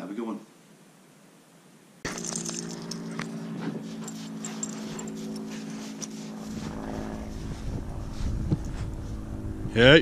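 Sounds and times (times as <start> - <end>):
dog paws crunching in snow: 2.1 - 9.3
low hum: 2.1 - 10.0
wind rumble on microphone: 6.5 - 10.0.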